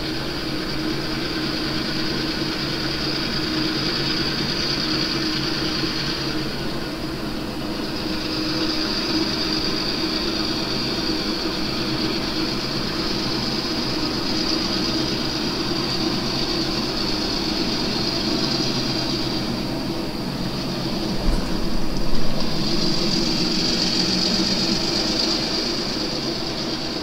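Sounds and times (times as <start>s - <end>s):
model train engine drone: 0.0s - 27.0s
high whine: 5.5s - 27.0s.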